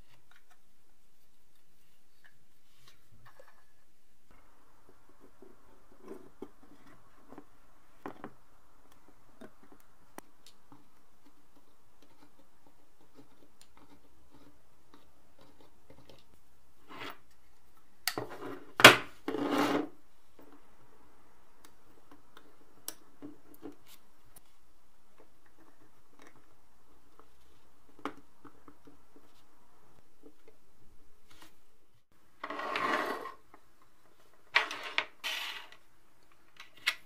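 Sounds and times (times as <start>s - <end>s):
metal scrape: 32.4s - 33.4s.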